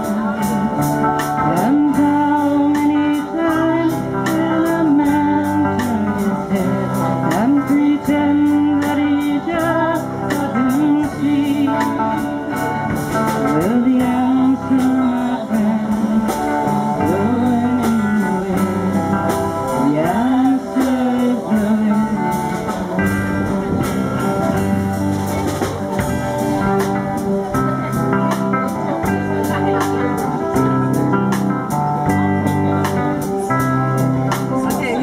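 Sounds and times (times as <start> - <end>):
person singing: 0.0 - 26.8
drum kit: 0.0 - 35.0
guitars strumming: 0.0 - 35.0.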